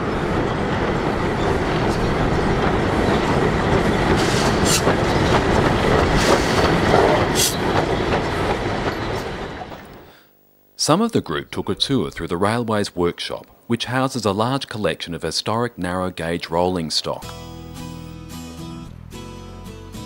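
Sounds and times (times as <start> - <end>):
train wheels clattering on rails: 0.0 - 10.0
steam train hissing: 0.0 - 10.2.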